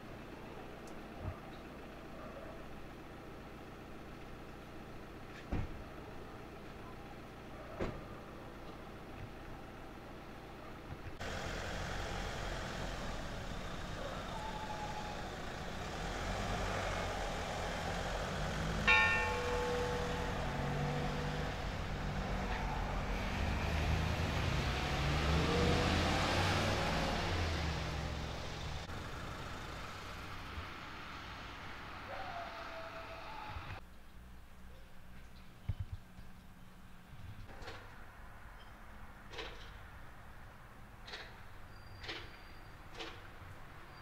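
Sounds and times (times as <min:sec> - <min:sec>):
vehicle passing: 0:11.2 - 0:33.5.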